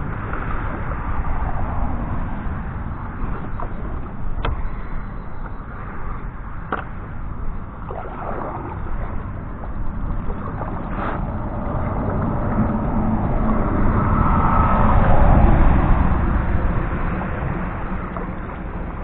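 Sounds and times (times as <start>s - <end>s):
kayak paddle strokes: 0.0s - 12.8s
low rumbling noise: 0.0s - 19.0s
water against hull: 0.0s - 19.0s.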